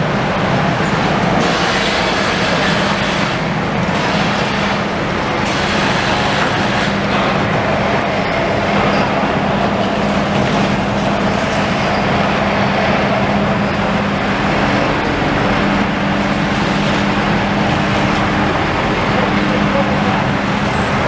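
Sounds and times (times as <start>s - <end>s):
heavy diesel demolition machinery: 0.0s - 21.0s
road traffic passing: 0.0s - 21.0s.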